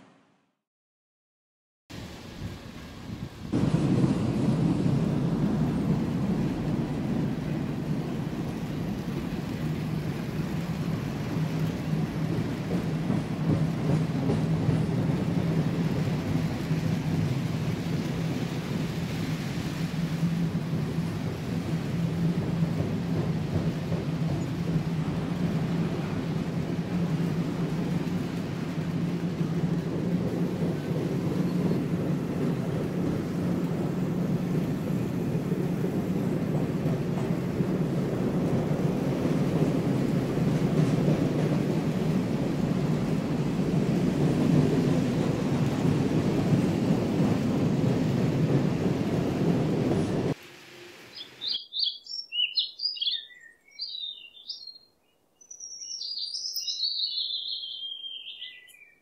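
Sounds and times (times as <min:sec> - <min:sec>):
birds chirping: 0:51.1 - 0:59.0.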